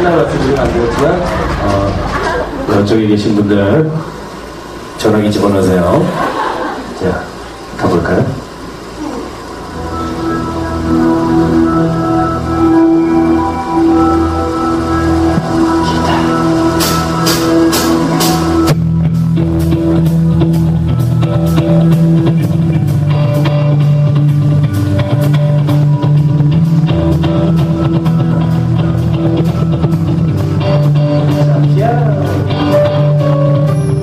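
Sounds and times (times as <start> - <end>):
live band music: 9.7 - 34.0.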